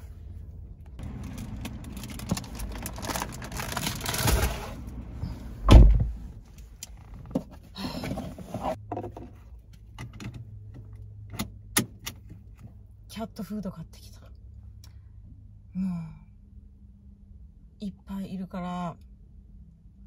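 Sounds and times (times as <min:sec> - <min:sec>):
low steady hum: 0:00.0 - 0:20.0
car door shutting: 0:05.6 - 0:06.2.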